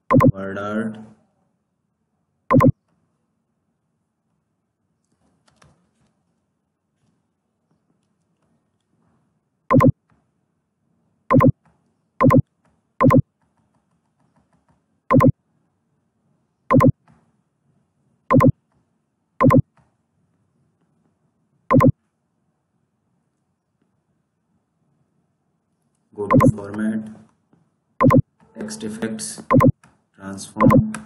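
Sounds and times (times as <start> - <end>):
short electronic beeps: 0.0 - 0.4, 2.5 - 2.8, 9.7 - 10.0, 11.3 - 11.5, 12.2 - 12.4, 13.0 - 13.2, 15.1 - 15.3, 16.7 - 16.9, 18.3 - 18.5, 19.4 - 19.6, 21.7 - 21.9, 26.3 - 26.6, 28.0 - 28.2, 29.5 - 29.7, 30.6 - 30.9.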